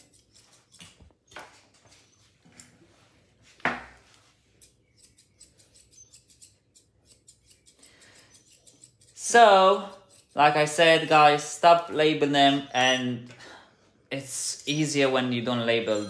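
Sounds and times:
scissors snipping fur: 0.0s - 1.4s, 4.6s - 11.2s.

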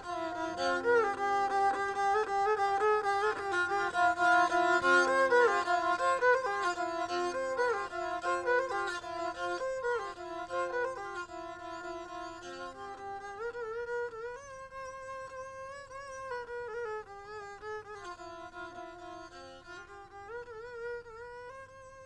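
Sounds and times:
bowed string slow melody: 0.0s - 22.0s.

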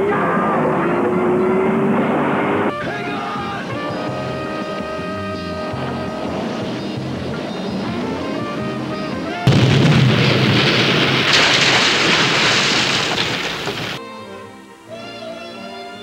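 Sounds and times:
background music: 0.0s - 9.8s, 14.0s - 16.0s
long rush of noise: 0.0s - 15.9s
loud explosion blast: 9.3s - 14.0s.

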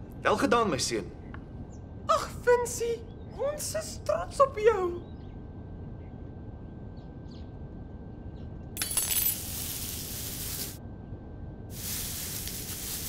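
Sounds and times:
low hum: 1.0s - 13.0s
hiss with glassy ringing: 11.7s - 13.0s.

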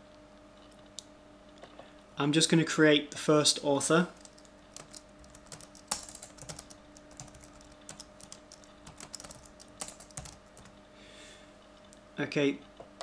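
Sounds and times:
faint steady hum: 0.0s - 13.0s
keyboard typing clicks: 4.2s - 10.7s.

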